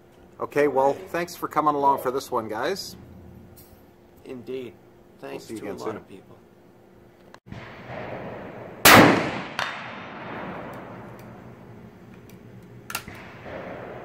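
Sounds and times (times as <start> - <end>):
rifle shot with echo: 7.5 - 11.5, 12.9 - 14.0.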